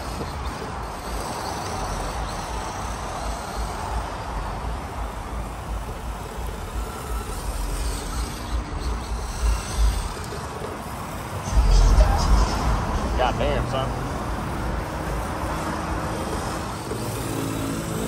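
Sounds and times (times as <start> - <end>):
rc car motor and tyres hissing: 0.0 - 18.0
low rumble: 11.5 - 14.9.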